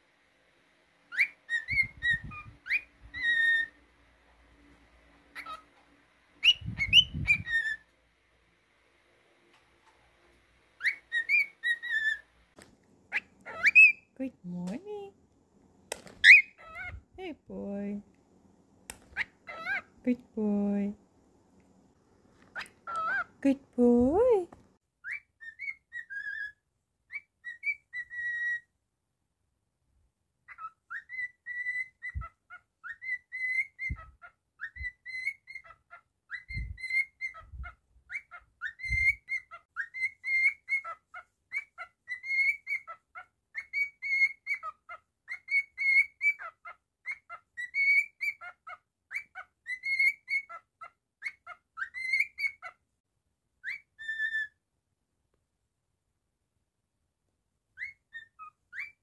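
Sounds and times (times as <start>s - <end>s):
bird whistling a tune: 1.1s - 3.7s, 6.4s - 7.8s, 30.5s - 35.5s, 38.1s - 41.0s, 53.6s - 54.6s, 57.8s - 59.0s.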